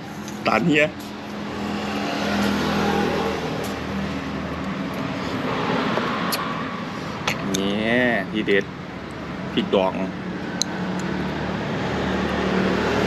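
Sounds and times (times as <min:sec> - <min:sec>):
motor vehicle passing by: 0:01.0 - 0:08.4, 0:09.0 - 0:13.0.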